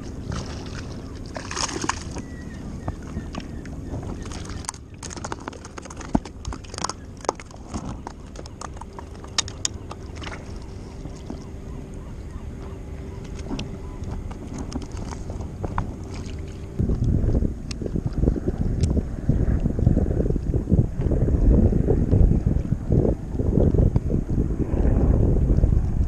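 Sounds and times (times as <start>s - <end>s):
wind buffeting microphone: 0.0s - 26.0s
fishing gear clicks and knocks: 2.9s - 11.4s.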